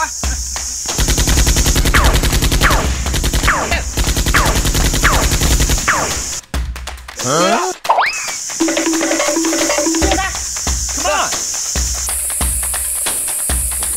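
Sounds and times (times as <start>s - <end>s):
machine-gun fire: 0.9s - 6.5s.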